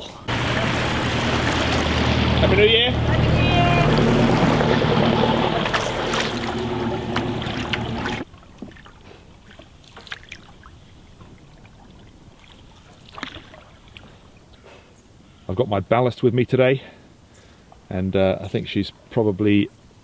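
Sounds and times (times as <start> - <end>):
water hissing: 0.3 - 8.2
boat engine running: 0.3 - 8.3.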